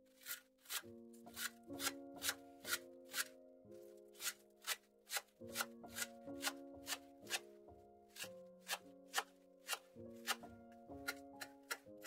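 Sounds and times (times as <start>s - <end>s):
knife chopping on wooden board: 8.2s - 10.4s.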